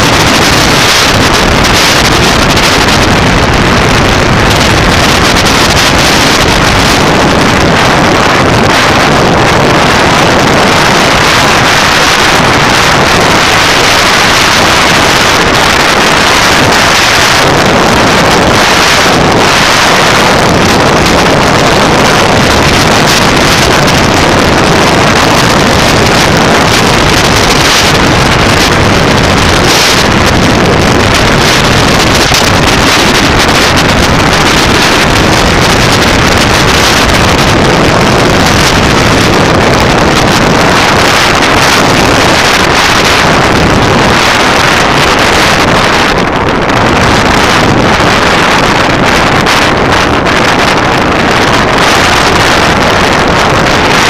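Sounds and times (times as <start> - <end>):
motorcycle engine running: 0.0 - 46.1
wind noise on microphone: 0.0 - 54.0.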